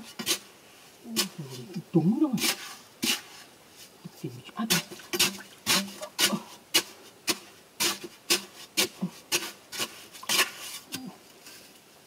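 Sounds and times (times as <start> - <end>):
digging bar striking hard earth: 4.6 - 11.1.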